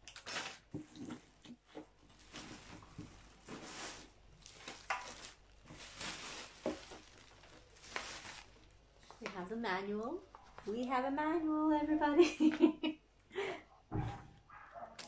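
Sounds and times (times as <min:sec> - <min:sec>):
plastic packaging crinkling: 0:00.9 - 0:09.6.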